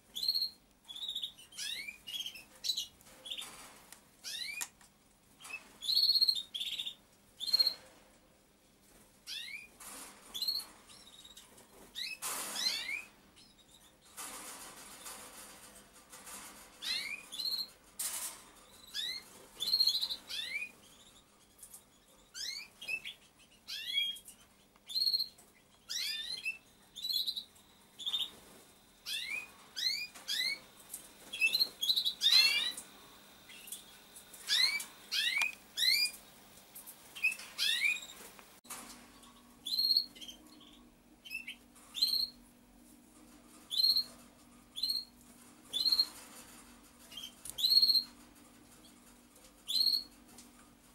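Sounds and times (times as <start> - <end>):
pigeon squab peeping: 49.6 - 50.2.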